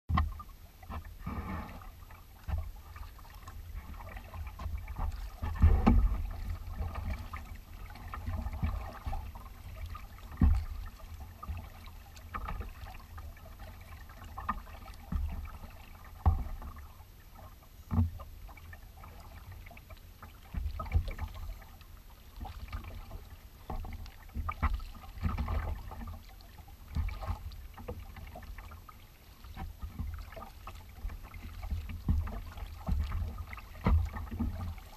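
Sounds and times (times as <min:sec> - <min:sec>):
paddle splashing in water: 0:00.1 - 0:34.9
water lapping at hull: 0:00.1 - 0:34.9
wind rumble on microphone: 0:02.5 - 0:11.8.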